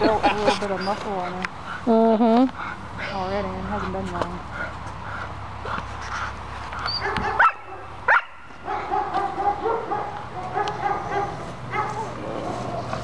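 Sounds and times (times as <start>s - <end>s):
puppy whining: 0.4s - 1.4s, 6.8s - 7.4s
puppy barking: 6.9s - 12.2s.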